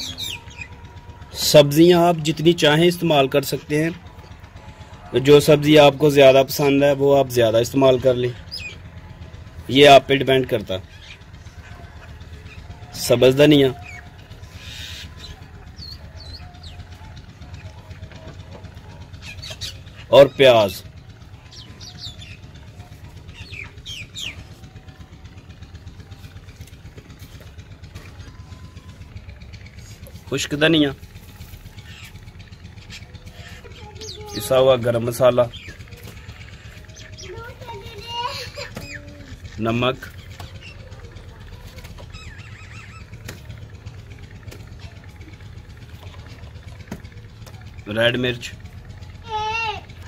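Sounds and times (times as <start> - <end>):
bird chirping: 0.0 - 1.5, 8.2 - 8.9, 10.8 - 25.0, 31.0 - 47.1
low mechanical hum: 0.0 - 50.0.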